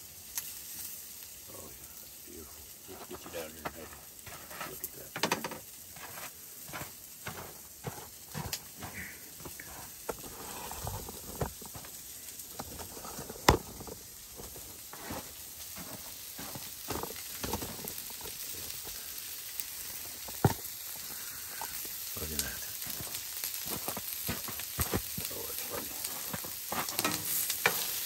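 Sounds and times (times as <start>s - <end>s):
food sizzling in a skillet: 0.0s - 28.0s.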